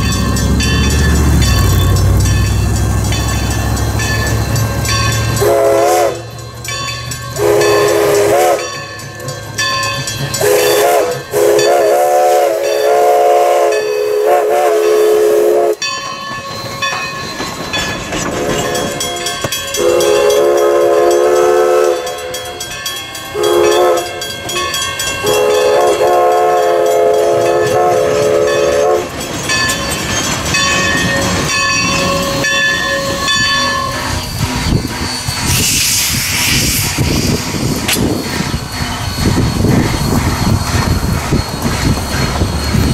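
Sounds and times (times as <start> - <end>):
steam whistle chime blasts: 4.0 - 6.6, 7.3 - 8.9, 10.4 - 16.0, 18.4 - 22.7, 23.3 - 29.1, 31.1 - 41.5
locomotive hissing and rumbling: 18.0 - 42.9.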